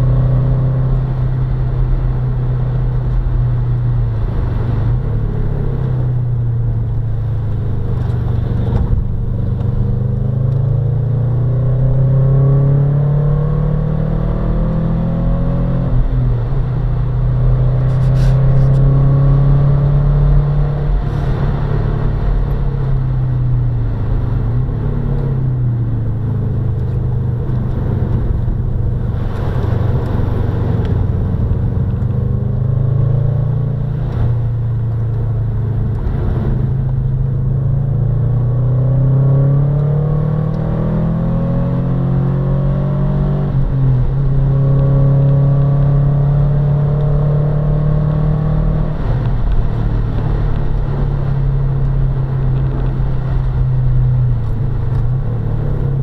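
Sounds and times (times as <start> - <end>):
car engine revving hard: 9.7 - 16.6, 35.2 - 56.0.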